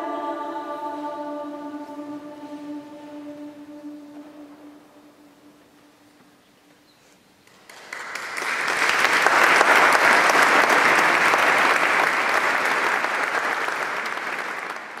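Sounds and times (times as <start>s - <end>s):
audience applauding: 7.4s - 15.0s.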